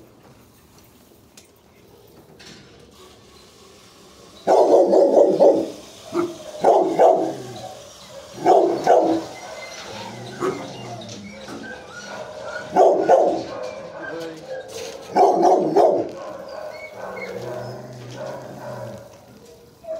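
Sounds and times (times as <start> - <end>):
dog barking: 4.5 - 19.1.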